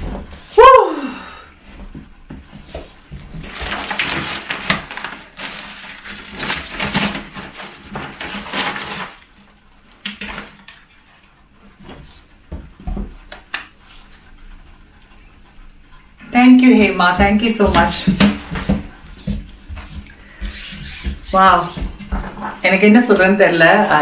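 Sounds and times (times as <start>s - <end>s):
packaging rustling and crinkling: 3.2s - 9.3s.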